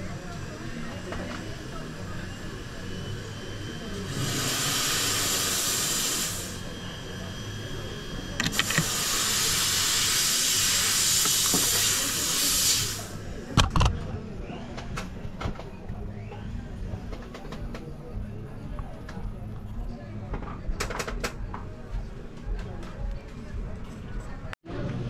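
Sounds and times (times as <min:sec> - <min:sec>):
small gas torch hissing: 0:00.0 - 0:13.3
clicks: 0:08.4 - 0:08.9.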